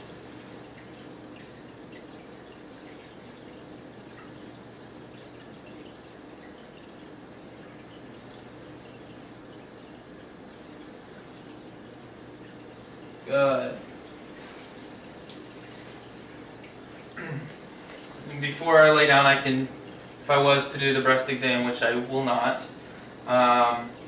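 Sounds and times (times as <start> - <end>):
faint small ticks: 15.2 - 15.5.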